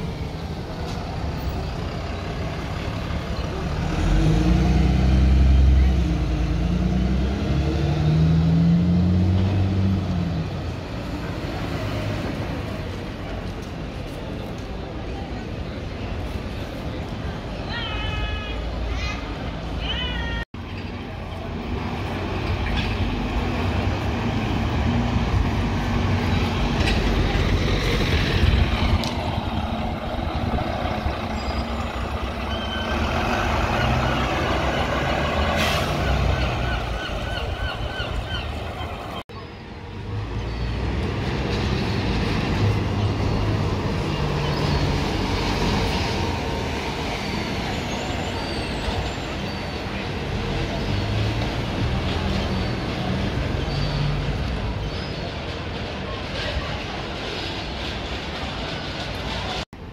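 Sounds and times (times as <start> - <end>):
diesel bus engines running: 0.0 - 11.4, 21.0 - 59.9
street noise: 0.0 - 59.9
voices of passers-by: 0.0 - 59.9.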